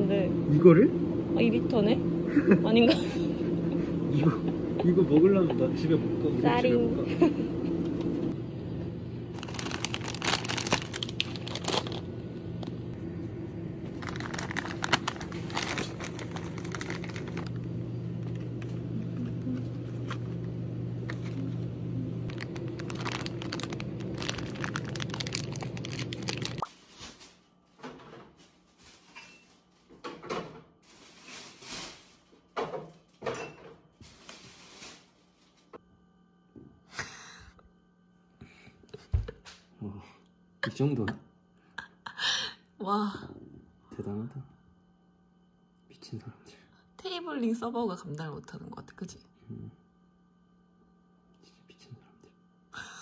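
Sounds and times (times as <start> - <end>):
refrigerated coolers humming: 0.0 - 26.7
plastic snack bags crinkling: 9.3 - 12.7, 13.9 - 17.6, 22.3 - 27.8.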